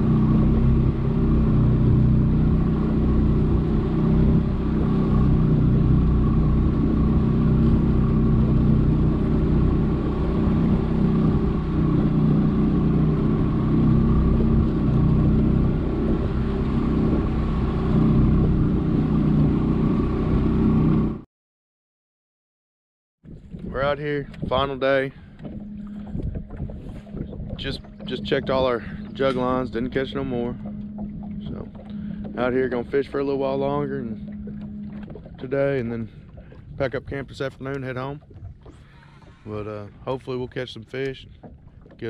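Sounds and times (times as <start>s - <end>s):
rushing water noise: 0.0s - 20.6s
outboard motor droning: 0.0s - 21.3s, 23.3s - 42.0s.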